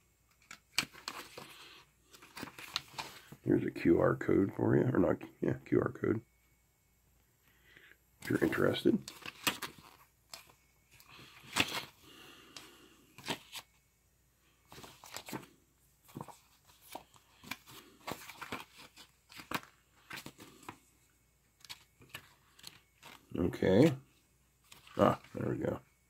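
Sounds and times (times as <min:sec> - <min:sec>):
booklet pages rustling: 0:00.3 - 0:03.4, 0:08.2 - 0:13.8, 0:14.6 - 0:20.9, 0:21.5 - 0:25.8.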